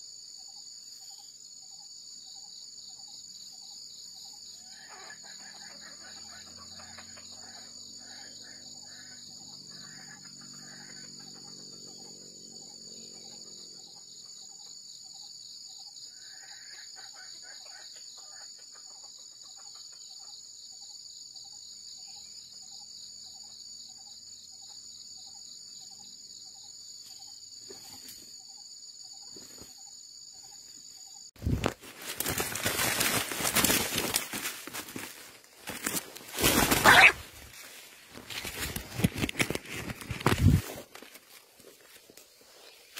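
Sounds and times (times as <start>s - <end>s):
insect drone: 0.0s - 42.9s
rustling in dry grass and leaves: 31.4s - 42.9s
short bird calls: 36.4s - 37.5s.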